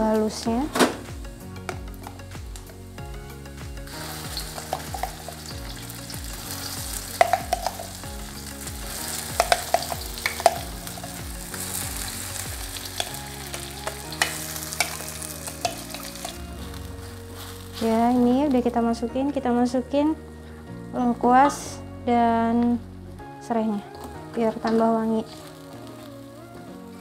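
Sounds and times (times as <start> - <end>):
spice paste sizzling in oil: 0.0 - 18.9, 23.9 - 27.0
utensils knocking against wok: 4.1 - 8.5, 9.2 - 16.4.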